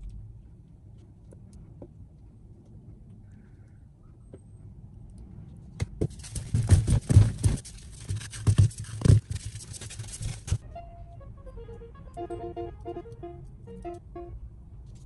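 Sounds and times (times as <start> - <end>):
irregular dull knocks and thumps: 5.8 - 9.7.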